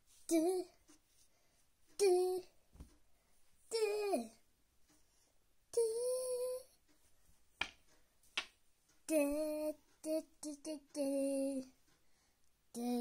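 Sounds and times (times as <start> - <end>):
girl singing held notes: 0.1 - 0.9, 2.0 - 2.6, 3.6 - 4.4, 5.7 - 6.8, 9.0 - 11.8, 12.7 - 13.0.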